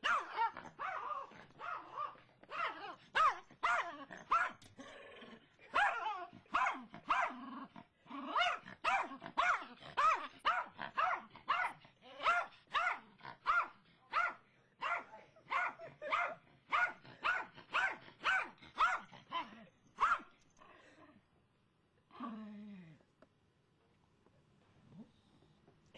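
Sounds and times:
dog barking rapidly: 0.0s - 4.6s, 5.7s - 7.4s, 8.3s - 19.1s, 20.0s - 20.3s.

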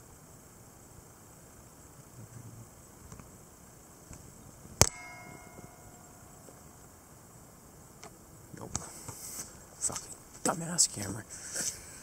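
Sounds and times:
metallic clang ringing: 4.8s - 7.0s.

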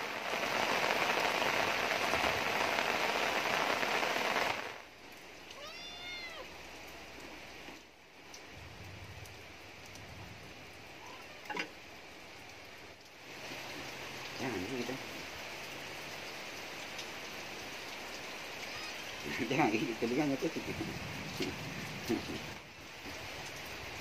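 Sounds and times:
heavy rain falling: 0.0s - 24.0s
cat meowing: 5.5s - 6.5s, 11.0s - 11.6s, 18.6s - 19.2s.

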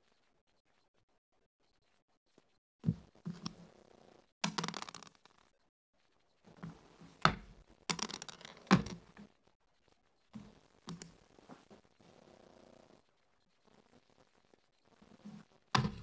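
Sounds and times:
checkers clacking on board: 4.4s - 5.3s, 7.9s - 9.2s
dice clattering on wooden board: 4.4s - 5.4s, 7.3s - 9.2s.

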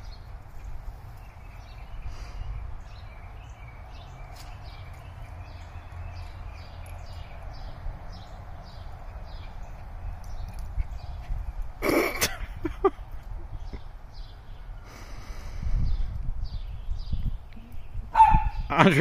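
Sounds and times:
bird chirping: 0.0s - 19.0s.

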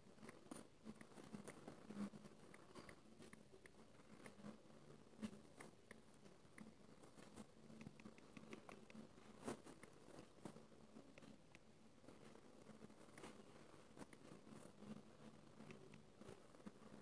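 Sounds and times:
quiet room hum: 0.0s - 17.0s
typing on phone touchscreen: 7.8s - 9.0s.

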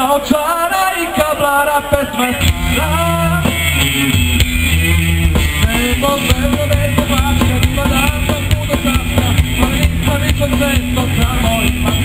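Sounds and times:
electric guitars: 0.0s - 12.0s
drum kit: 2.0s - 12.0s
bass line: 2.2s - 12.0s.

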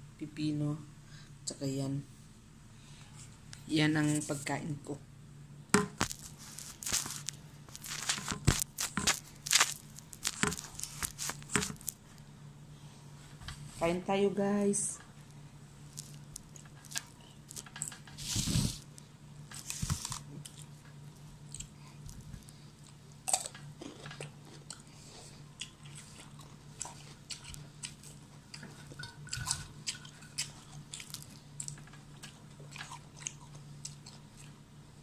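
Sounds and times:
steady low hum: 0.0s - 35.0s
chewing and crunching: 6.0s - 12.0s, 15.8s - 34.7s.

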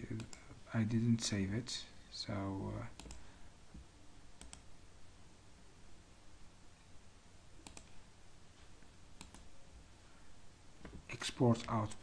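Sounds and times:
low room hiss: 0.0s - 12.0s
mouse buttons clicking: 4.4s - 4.7s, 7.6s - 8.0s, 9.2s - 9.5s.

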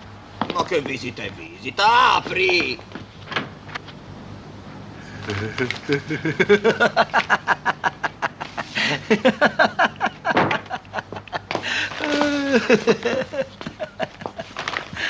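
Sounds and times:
voices: 0.0s - 15.0s
man laughing heartily: 5.0s - 15.0s.

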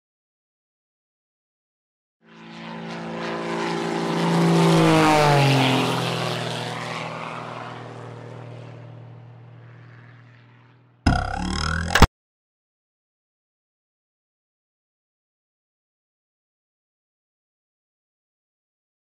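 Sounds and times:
propeller aircraft flying past: 2.2s - 12.1s.

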